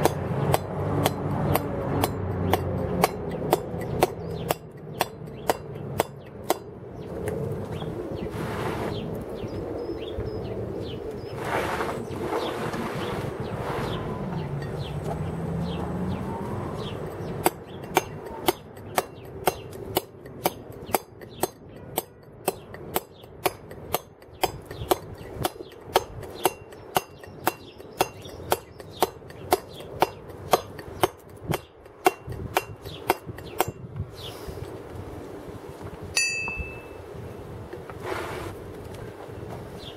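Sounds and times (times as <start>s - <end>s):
mallet striking chisel on stone: 17.4s - 33.8s.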